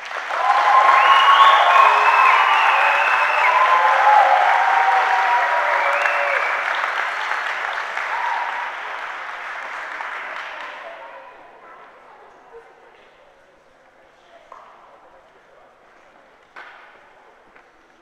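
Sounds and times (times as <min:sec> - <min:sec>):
audience applause: 0:00.0 - 0:11.6.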